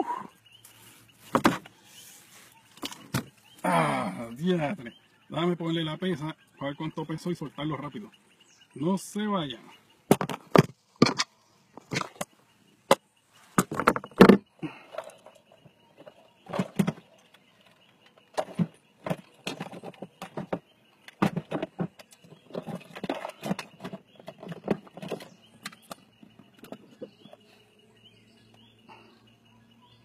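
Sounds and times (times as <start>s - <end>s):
camera handling rustles and knocks: 10.1s - 12.3s.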